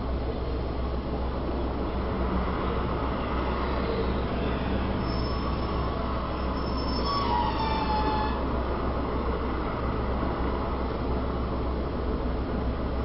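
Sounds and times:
city traffic hum: 0.0 - 13.0
high squeal falling in pitch: 5.0 - 8.4.

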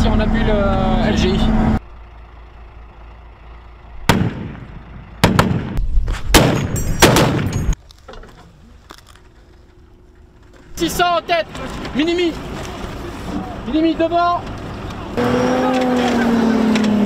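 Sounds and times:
gunshots with echoing tails: 4.1 - 7.8.

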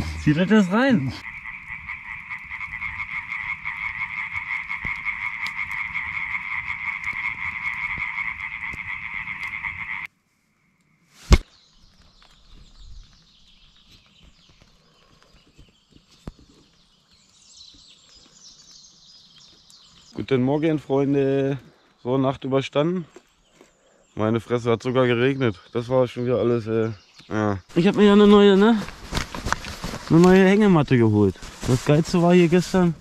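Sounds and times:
frogs calling: 0.0 - 11.1.

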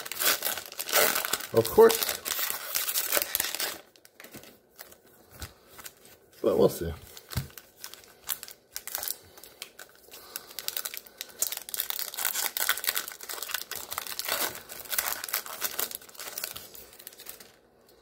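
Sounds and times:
foil wrapper crinkling and tearing: 0.0 - 17.7.

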